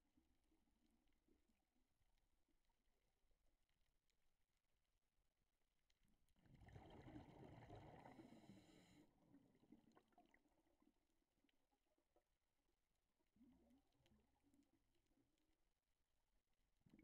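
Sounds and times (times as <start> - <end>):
underwater air bubbling: 6.4 - 10.8.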